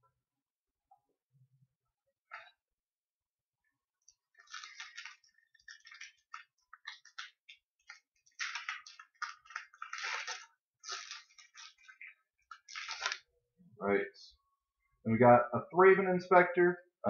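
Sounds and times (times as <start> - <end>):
foil wrapper crinkling and tearing: 4.1 - 13.3.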